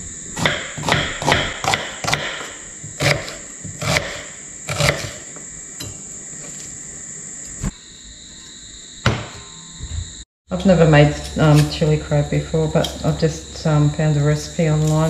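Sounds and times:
knife chopping on cutting board: 0:00.4 - 0:05.2.

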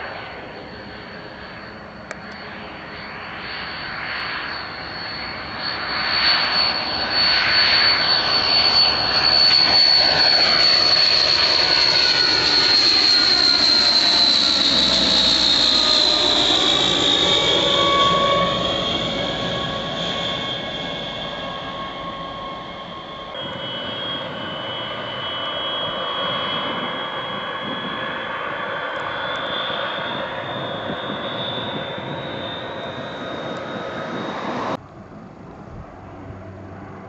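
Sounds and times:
turboprop aircraft whine: 0:00.0 - 0:37.0.

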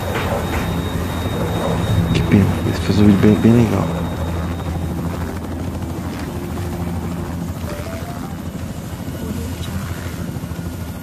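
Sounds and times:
low mechanical drone: 0:00.0 - 0:11.0
short high tones: 0:01.4 - 0:04.6, 0:07.6 - 0:08.9.

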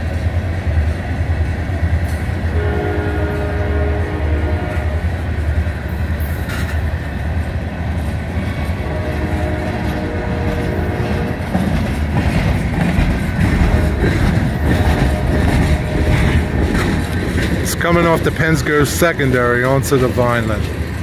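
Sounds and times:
freight train rumbling past: 0:00.0 - 0:21.0
train horn chord: 0:02.5 - 0:05.2, 0:08.6 - 0:11.4, 0:13.6 - 0:16.9.

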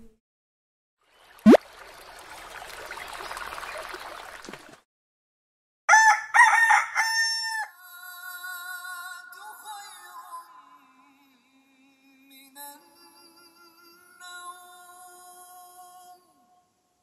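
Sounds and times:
rooster crowing: 0:05.9 - 0:07.8.

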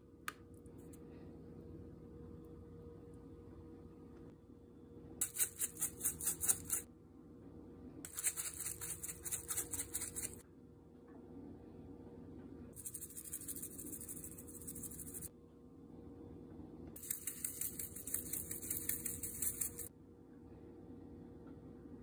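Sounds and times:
faint steady hum: 0:00.0 - 0:22.0
seasoning shaker rattling: 0:05.2 - 0:06.8, 0:08.1 - 0:10.4, 0:12.8 - 0:15.3, 0:17.0 - 0:19.9.

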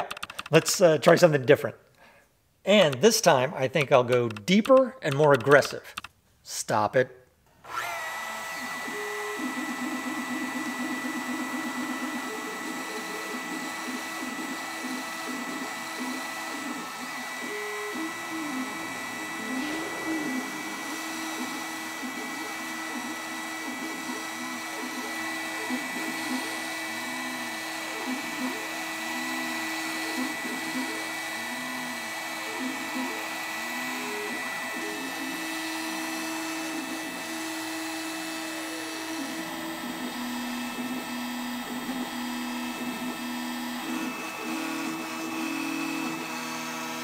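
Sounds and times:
router spindle whine: 0:07.6 - 0:47.0
stepper motors whirring: 0:07.7 - 0:47.0.

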